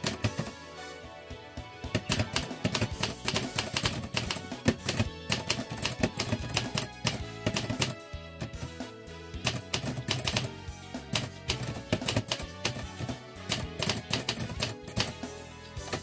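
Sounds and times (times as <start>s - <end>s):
typewriter keys clacking: 0.0s - 0.5s, 2.0s - 8.0s, 9.4s - 10.5s, 11.2s - 15.2s.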